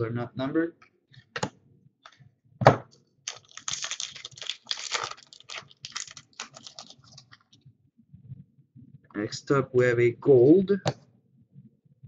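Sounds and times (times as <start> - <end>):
foil wrapper tearing and crinkling: 3.3 - 7.5.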